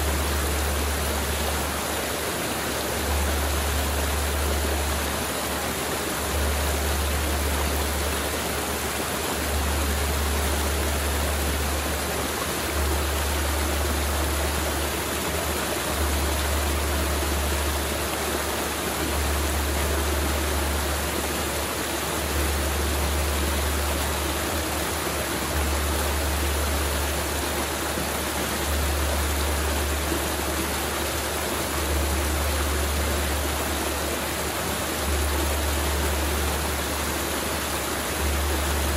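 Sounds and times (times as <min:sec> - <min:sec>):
river rushing over rocks: 0:00.0 - 0:38.9.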